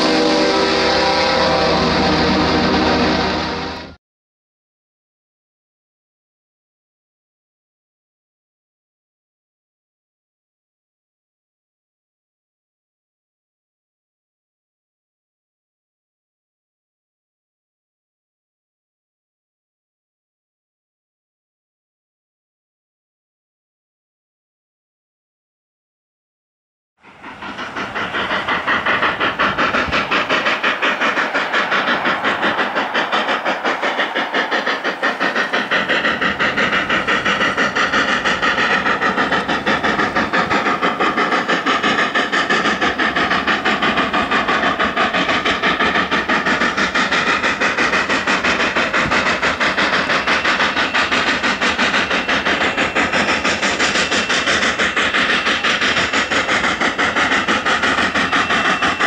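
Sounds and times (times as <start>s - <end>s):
steam locomotive exhaust chuffing: 0.0s - 4.0s, 27.0s - 59.0s.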